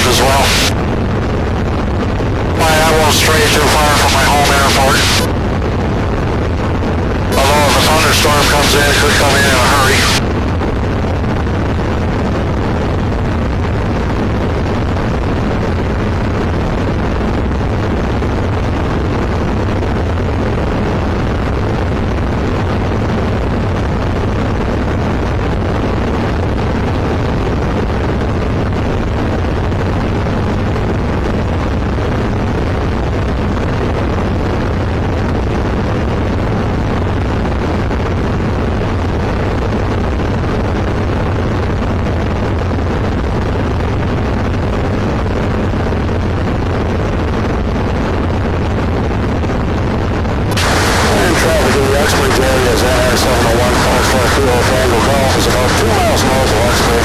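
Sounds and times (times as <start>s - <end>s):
aircraft engine and propeller droning: 50.5s - 57.0s
wind rushing: 50.5s - 57.0s.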